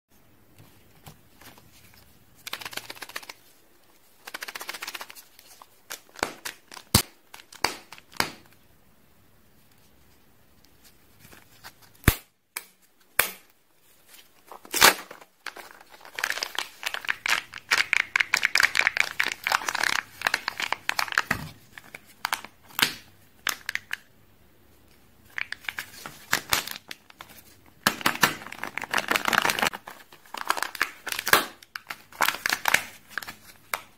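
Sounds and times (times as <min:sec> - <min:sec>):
plastic wrapper crinkling: 0:14.5 - 0:22.6, 0:25.3 - 0:33.9.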